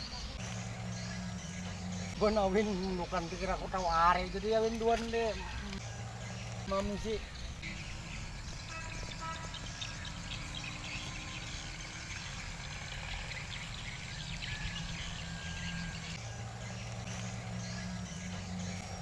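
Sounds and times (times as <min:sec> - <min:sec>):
birds chirping: 0:00.0 - 0:19.0
insects: 0:00.0 - 0:19.0
low steady hum: 0:00.0 - 0:19.0.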